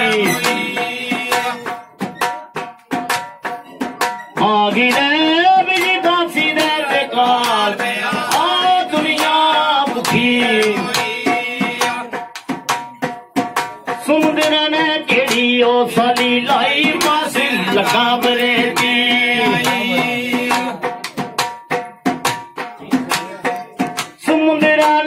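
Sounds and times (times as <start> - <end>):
man singing into a microphone: 0.0 - 1.8, 4.4 - 12.2, 13.9 - 21.0, 22.9 - 25.0
dhol drums beating: 0.0 - 25.0.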